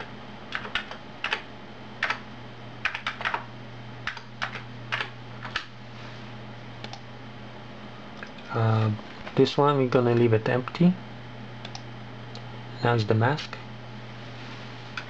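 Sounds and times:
steady low hum: 0.0 - 15.0
computer keyboard typing: 0.5 - 2.2, 2.8 - 3.4, 4.0 - 5.7.

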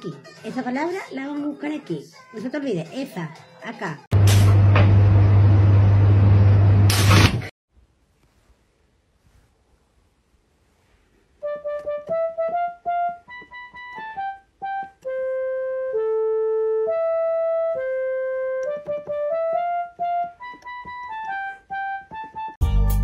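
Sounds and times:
electronic keyboard melody: 11.4 - 23.0.

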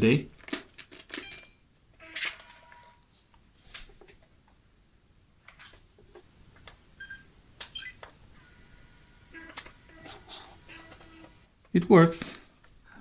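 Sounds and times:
short electronic beep: 7.0 - 8.0.

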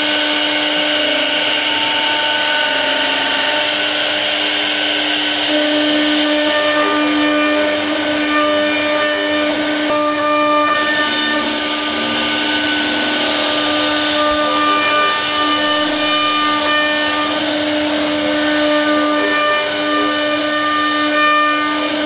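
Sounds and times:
router spindle whining: 0.0 - 22.0.

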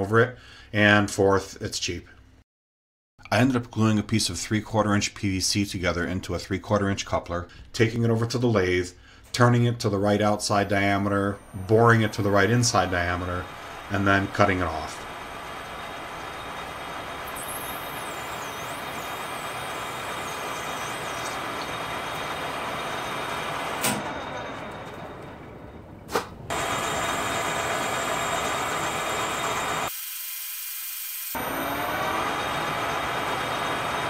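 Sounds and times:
metal lathe running: 11.3 - 25.3, 26.5 - 29.9, 30.9 - 34.0
lathe cutting pipe: 11.4 - 24.0, 26.5 - 34.0.

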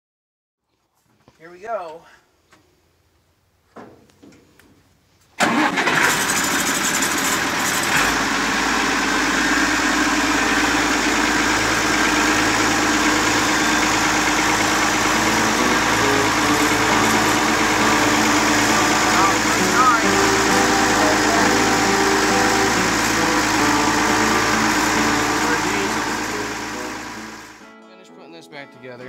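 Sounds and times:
tractor engine idling: 5.4 - 27.6.

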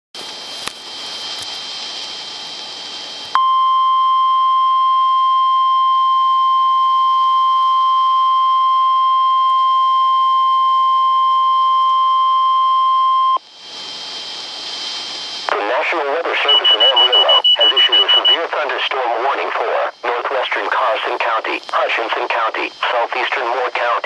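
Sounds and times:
radio hiss: 13.4 - 24.0
loud steady alarm beep: 16.3 - 18.5.

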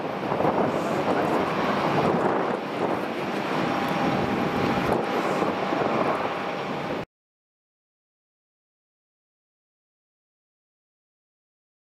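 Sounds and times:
jet engines rushing: 0.0 - 7.1.

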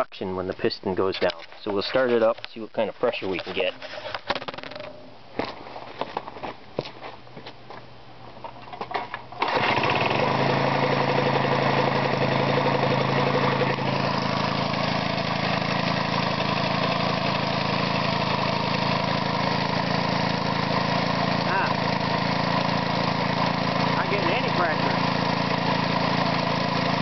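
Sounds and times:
air compressor engine running: 9.4 - 27.0.

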